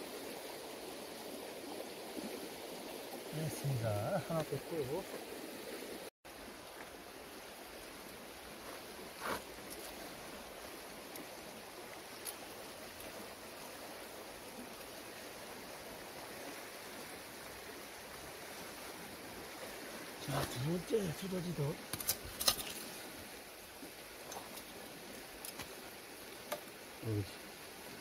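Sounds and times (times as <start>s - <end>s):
outdoor background hiss: 0.0s - 28.0s.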